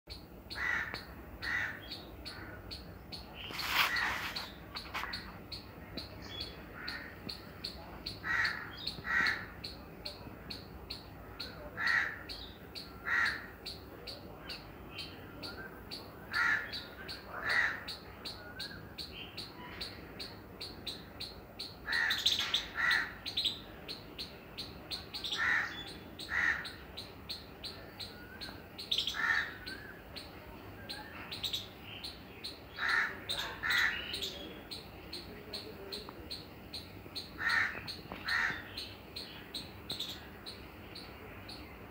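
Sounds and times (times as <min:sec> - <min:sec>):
squirrel chip calls: 0:00.1 - 0:41.9
crow cawing: 0:00.6 - 0:02.5, 0:06.8 - 0:07.2, 0:08.2 - 0:09.6, 0:11.8 - 0:12.3, 0:13.0 - 0:13.5, 0:16.3 - 0:16.7, 0:17.4 - 0:17.9, 0:21.8 - 0:23.2, 0:25.3 - 0:26.8, 0:29.1 - 0:29.8, 0:32.7 - 0:34.1, 0:37.4 - 0:38.7.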